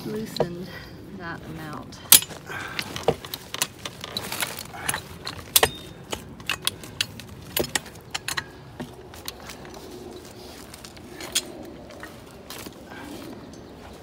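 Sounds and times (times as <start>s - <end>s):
metal jack clinking and rattling: 2.1s - 12.7s.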